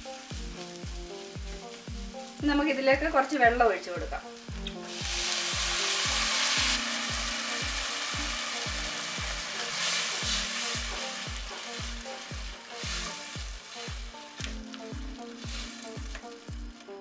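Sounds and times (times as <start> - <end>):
food sizzling in a pot: 0.0 - 17.0
soft background music: 0.0 - 17.0
spatula stirring: 4.4 - 17.0.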